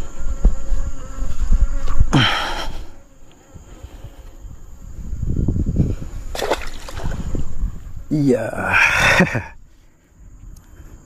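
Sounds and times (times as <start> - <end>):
microphone handling noise: 0.0 - 2.9
insect buzzing: 0.0 - 11.0.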